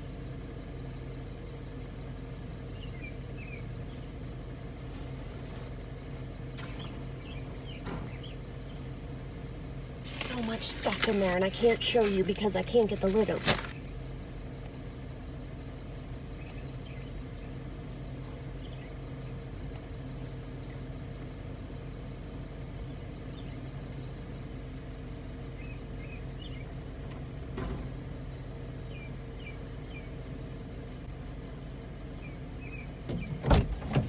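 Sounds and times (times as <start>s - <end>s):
car engine idling: 0.0s - 34.0s
faint bird chirps: 2.6s - 4.2s, 16.3s - 19.4s, 25.4s - 26.8s, 28.3s - 30.5s, 32.1s - 33.4s.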